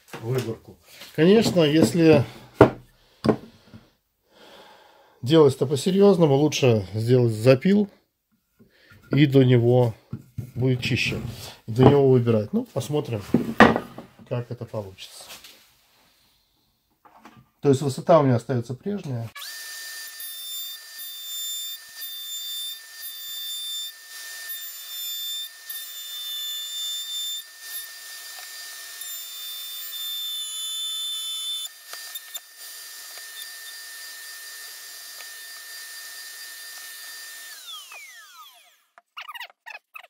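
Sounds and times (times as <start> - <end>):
router whining and cutting wood: 19.4 - 39.2.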